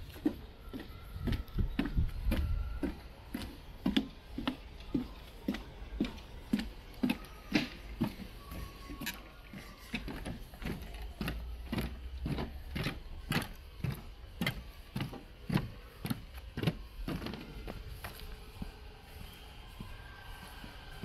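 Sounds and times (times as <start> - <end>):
footsteps on paved path: 0.0 - 21.0
footsteps on wooden planks: 0.0 - 21.0.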